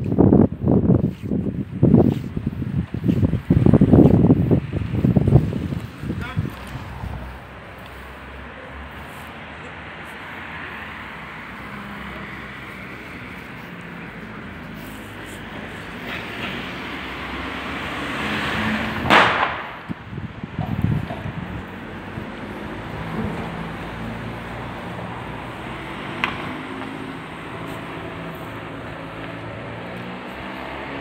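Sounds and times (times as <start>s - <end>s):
street traffic hiss: 0.0s - 31.0s
sharp loud burst: 19.0s - 19.8s.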